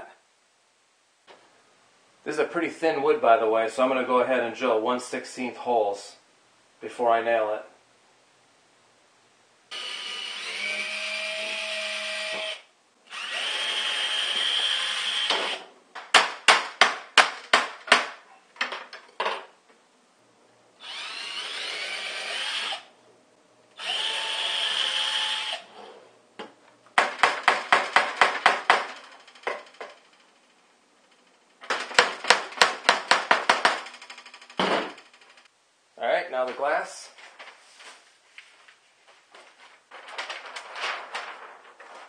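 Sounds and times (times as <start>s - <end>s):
cordless drill boring wood: 9.7s - 15.6s, 20.8s - 22.9s, 23.8s - 25.7s
hammer blows driving nails: 15.2s - 18.2s, 27.0s - 30.0s, 31.6s - 35.0s.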